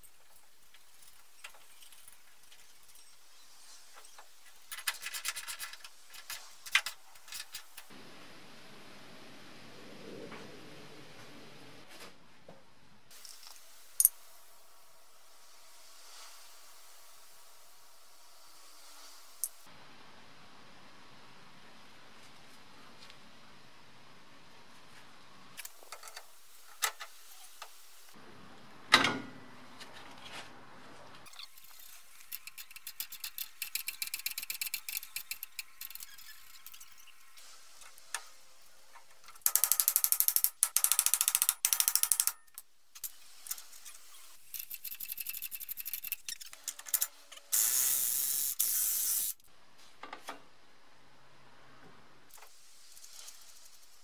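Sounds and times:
socket ratchet clicking: 0:39.5 - 0:42.5.

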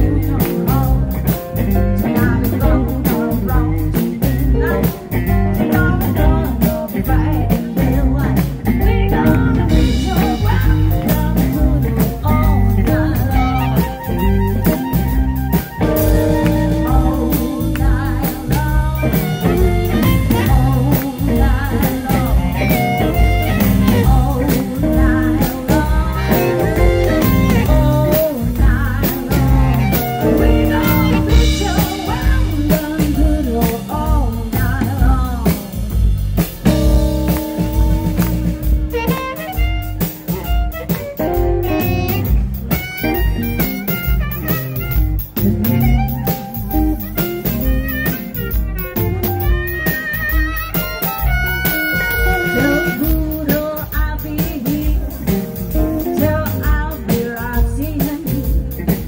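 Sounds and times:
woman singing: 0:00.0 - 0:44.9, 0:49.0 - 0:59.0
drums: 0:00.0 - 0:59.0
electric bass: 0:00.0 - 0:59.0
keyboard: 0:00.0 - 0:59.0
amplified harmonica: 0:09.8 - 0:33.2, 0:36.6 - 0:54.0.

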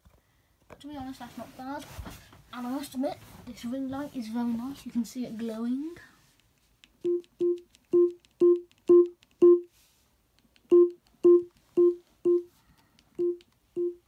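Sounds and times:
smart speaker feedback beeps: 0:07.1 - 0:09.7, 0:10.7 - 0:12.5, 0:13.2 - 0:14.0.

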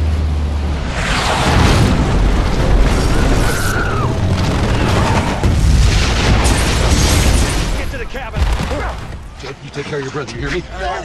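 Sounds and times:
explosion booms and rumbling: 0:01.1 - 0:09.3.

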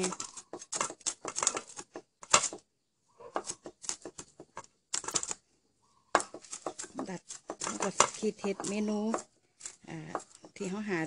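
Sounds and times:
knife chopping on wooden board: 0:00.0 - 0:02.6, 0:03.2 - 0:05.3, 0:06.1 - 0:09.3, 0:10.1 - 0:10.7.

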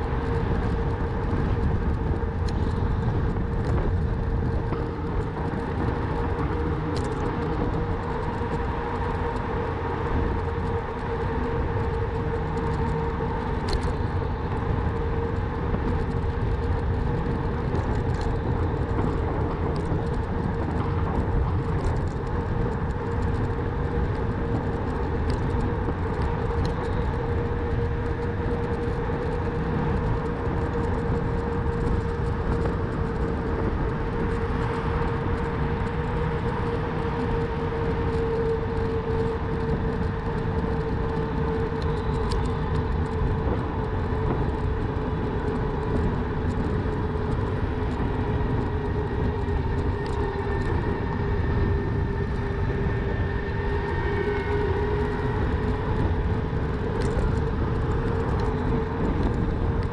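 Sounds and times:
tyre and wind rumble: 0:00.0 - 0:59.9
faint ticks: 0:13.6 - 0:14.2, 0:14.9 - 0:23.6, 0:38.1 - 0:43.6.

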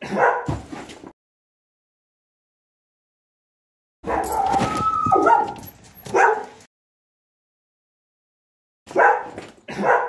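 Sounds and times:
dog barking: 0:00.0 - 0:00.6, 0:04.0 - 0:04.4, 0:05.1 - 0:06.6, 0:08.9 - 0:10.0.

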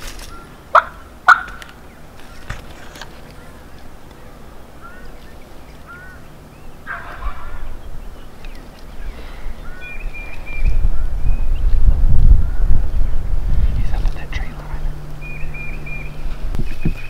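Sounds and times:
rustle of brush: 0:00.0 - 0:11.0, 0:12.9 - 0:17.0
turkey yelping: 0:00.3 - 0:01.6, 0:06.8 - 0:07.7.

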